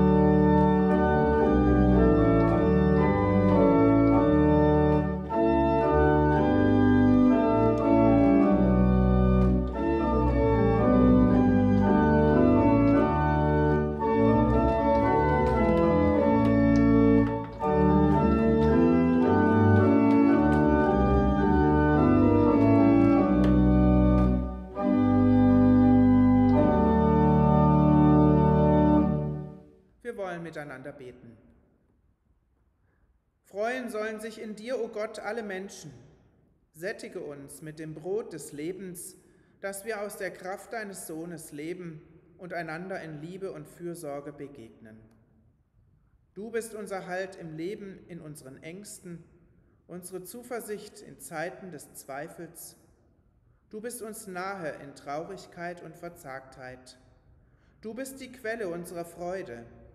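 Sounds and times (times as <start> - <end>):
pipe organ playing chords: 0.0 - 29.7.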